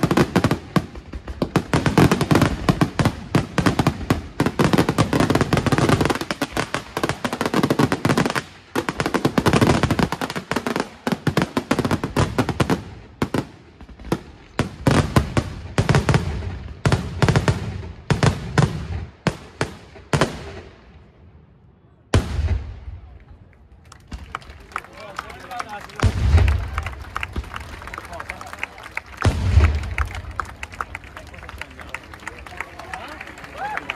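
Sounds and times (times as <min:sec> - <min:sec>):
fireworks bursting: 0:00.0 - 0:21.0, 0:22.1 - 0:23.2, 0:25.5 - 0:31.3
deep boom: 0:29.2 - 0:30.4.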